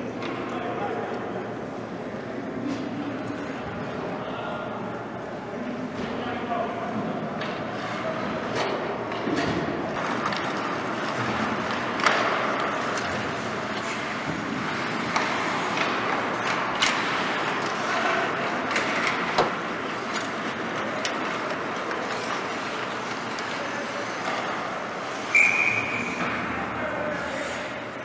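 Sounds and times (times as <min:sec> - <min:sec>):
stick hitting puck clacks: 0:08.6 - 0:24.6
skates scraping ice: 0:09.9 - 0:27.9.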